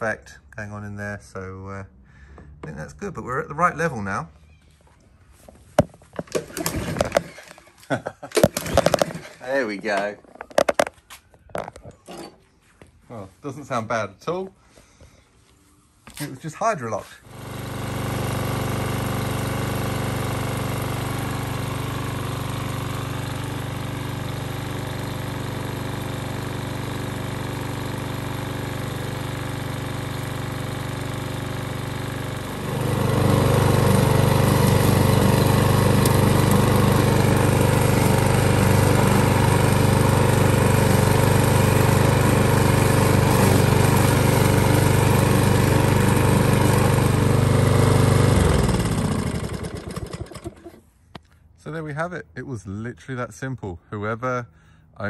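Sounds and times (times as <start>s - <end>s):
lawn mower engine running: 6.1s - 10.9s, 17.2s - 50.9s.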